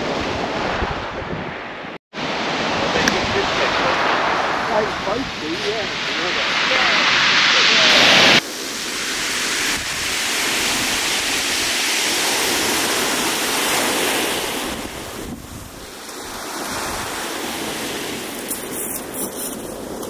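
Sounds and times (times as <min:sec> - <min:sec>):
wind buffeting microphone: 0:00.0 - 0:01.7, 0:02.7 - 0:20.0.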